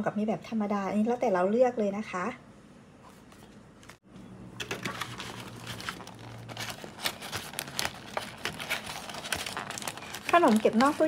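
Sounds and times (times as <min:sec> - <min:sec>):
plastic box crinkling: 0:04.7 - 0:11.0.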